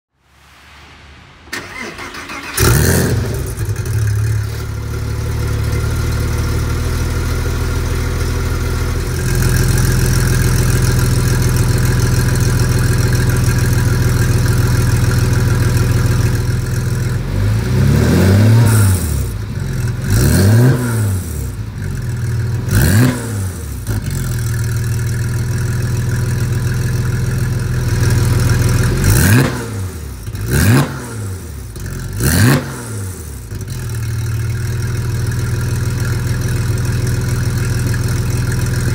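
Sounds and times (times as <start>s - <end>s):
engine throttle blips: 0.3s - 6.5s
car engine idling: 1.5s - 17.7s, 21.2s - 29.2s, 33.4s - 38.9s.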